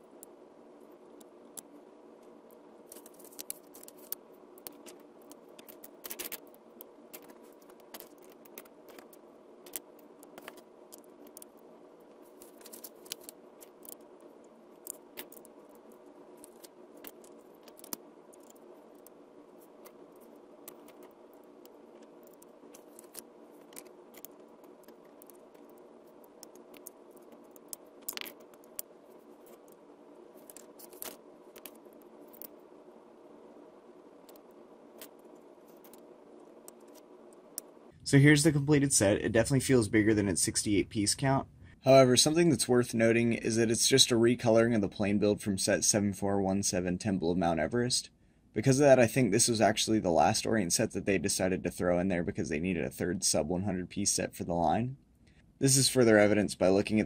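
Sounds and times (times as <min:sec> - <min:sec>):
faint hum: 0:00.0 - 0:57.0
plastic bricks clicking together: 0:27.6 - 0:28.9.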